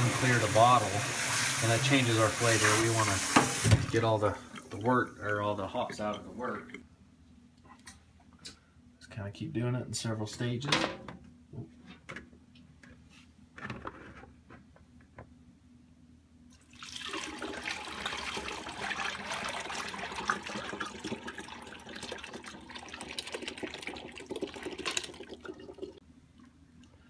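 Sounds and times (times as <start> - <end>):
liquid pouring through strainer: 16.6 - 26.0.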